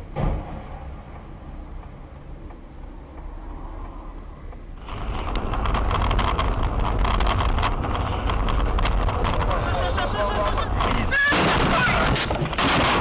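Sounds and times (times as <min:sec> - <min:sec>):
low car cabin rumble: 0:00.0 - 0:12.6
road and engine noise: 0:00.0 - 0:13.0
fast crackling: 0:04.8 - 0:13.0.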